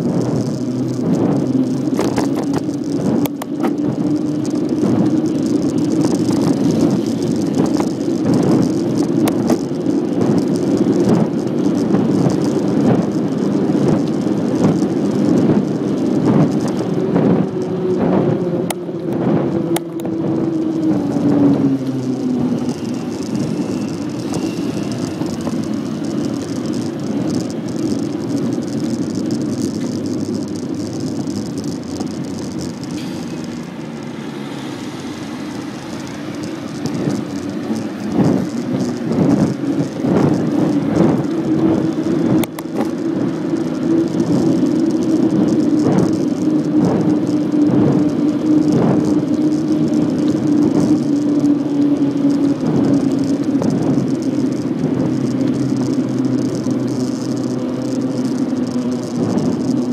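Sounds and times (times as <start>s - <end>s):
bicycle rattles and knocks: 0.0s - 59.9s
bicycle tyres humming on road: 0.0s - 59.9s
wind on microphone: 0.0s - 59.9s.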